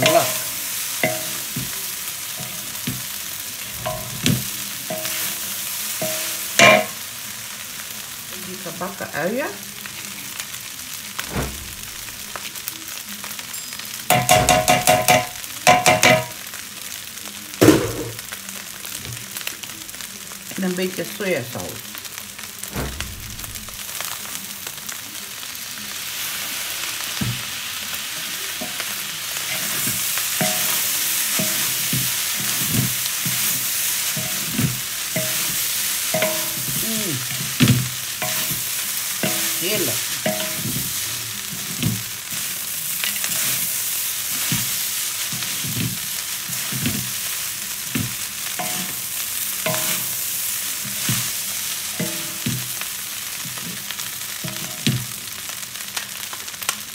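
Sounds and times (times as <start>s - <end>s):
utensil scraping and knocking wok: 0.0s - 7.1s, 14.1s - 16.4s, 22.8s - 23.9s, 28.4s - 55.1s
rice sizzling in a wok: 0.0s - 56.9s.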